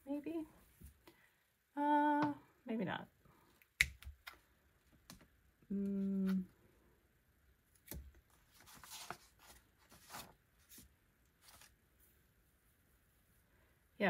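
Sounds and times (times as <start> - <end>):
woman humming: 5.6 - 6.6.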